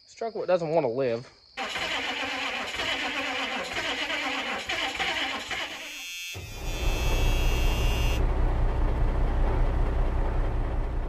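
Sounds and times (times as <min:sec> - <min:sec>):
engine rumbling: 0:06.4 - 0:11.0.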